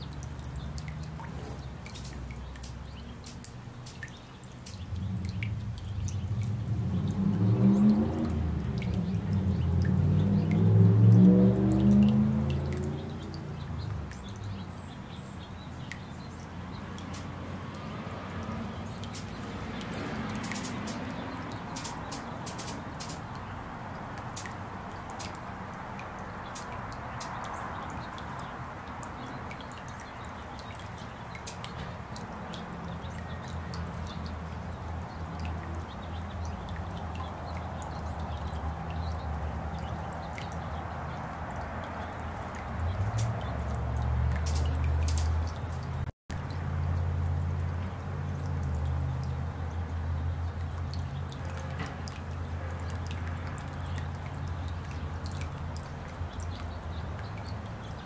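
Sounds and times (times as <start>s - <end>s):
fountain water splashing: 0.0s - 58.0s
high chirps: 44.5s - 45.8s.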